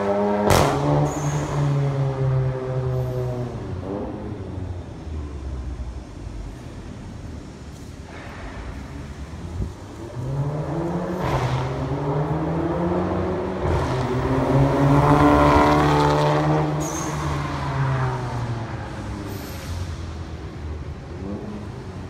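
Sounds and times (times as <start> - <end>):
car accelerating past: 10.0 - 20.1.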